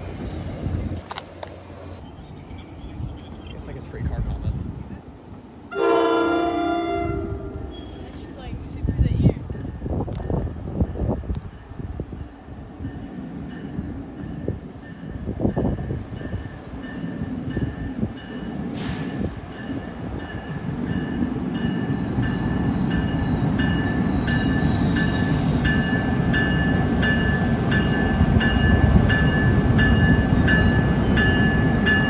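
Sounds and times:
passing train rumble: 0.0 - 32.0
train bell ringing: 9.5 - 32.0.

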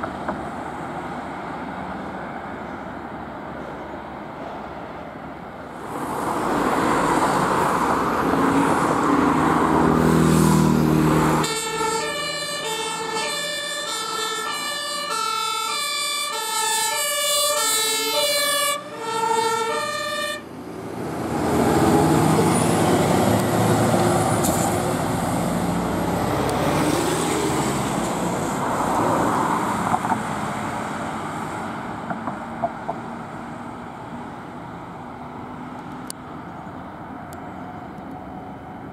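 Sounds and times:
road noise of passing vehicles: 0.0 - 38.9
heavy engine accelerating: 5.7 - 15.4, 20.6 - 32.0
two-tone siren: 11.4 - 20.5.

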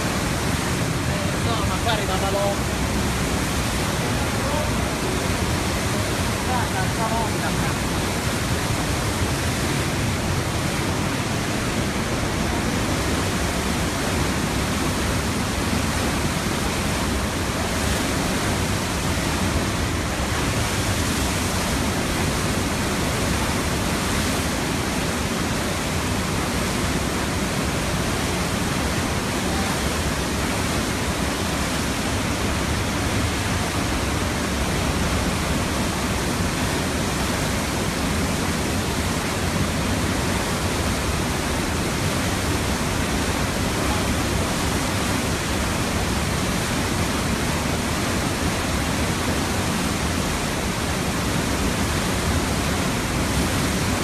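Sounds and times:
floodwater rushing: 0.0 - 54.0.

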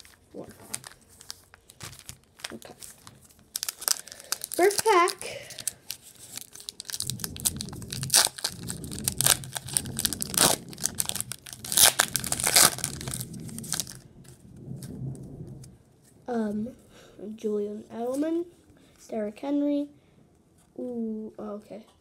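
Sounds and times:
foil wrapper tearing and crinkling: 0.0 - 14.0.

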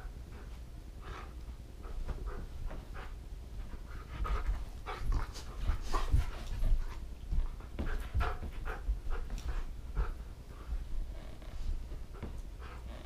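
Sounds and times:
dog panting hard: 0.3 - 10.9
thumps and scuffling on carpet: 1.4 - 12.8.

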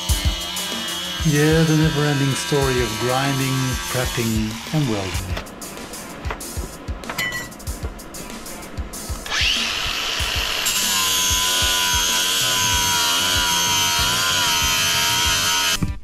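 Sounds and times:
angle grinder grinding steel: 0.0 - 6.1, 9.1 - 15.8.

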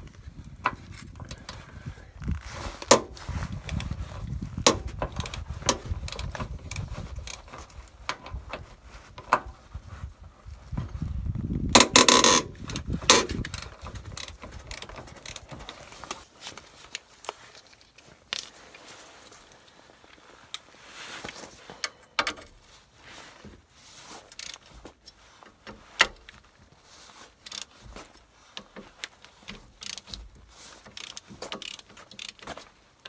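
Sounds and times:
socket ratchet clicking: 11.8 - 15.4, 31.0 - 32.4
metal tools clinking: 17.7 - 18.8.

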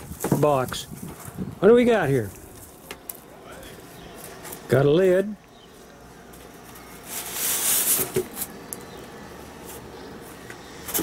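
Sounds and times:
foam and cardboard rustling scrape: 6.8 - 8.5.

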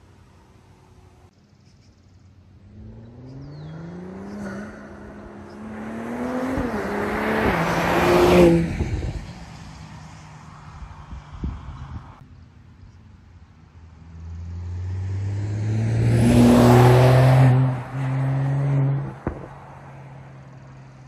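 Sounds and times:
car accelerating hard: 2.6 - 12.0, 14.1 - 19.6.

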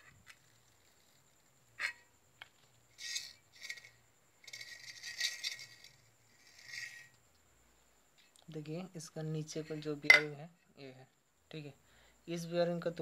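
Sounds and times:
metal scraping: 2.9 - 7.2
metal parts clinking: 3.0 - 7.2.

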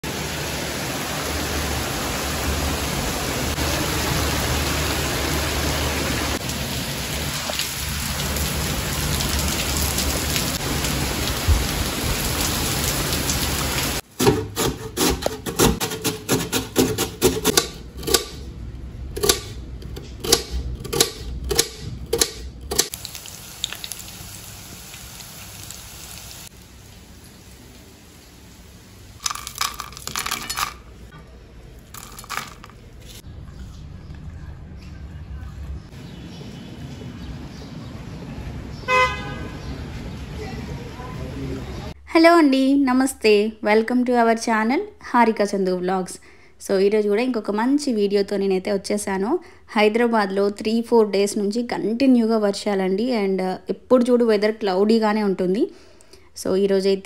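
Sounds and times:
heavy rain falling: 0.0 - 14.1, 22.9 - 30.8, 39.4 - 42.0
potato grated on metal grater: 14.5 - 17.6.

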